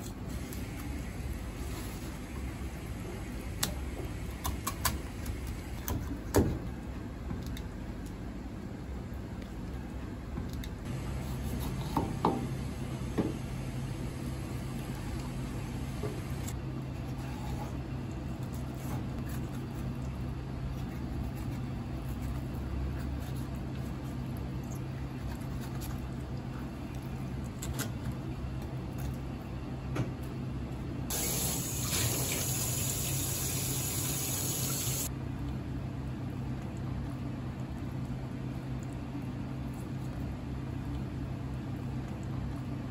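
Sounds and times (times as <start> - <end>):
steady low hum: 0.0 - 42.9
tap water running into sink: 31.1 - 35.0.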